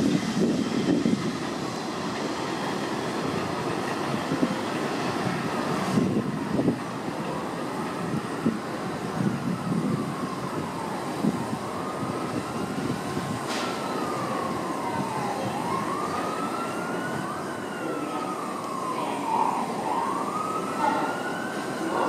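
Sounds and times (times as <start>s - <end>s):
siren wailing: 0.0s - 22.0s
subway train rumbling on elevated track: 0.0s - 22.0s.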